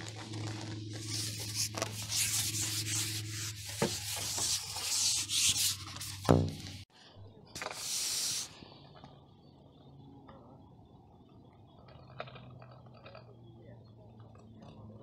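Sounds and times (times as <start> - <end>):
low steady hum: 0.0 - 7.8
fishing pole sliding through hands: 1.0 - 6.8, 7.6 - 8.6.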